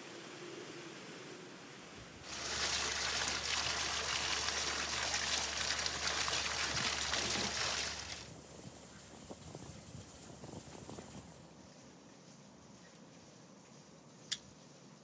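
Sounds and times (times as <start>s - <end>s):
water splashing into metal basin: 2.2s - 8.3s.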